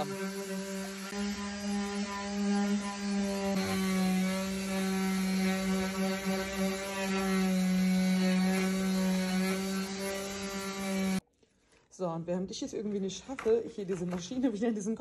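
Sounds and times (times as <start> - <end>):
electric sander sanding wood: 0.0 - 11.2.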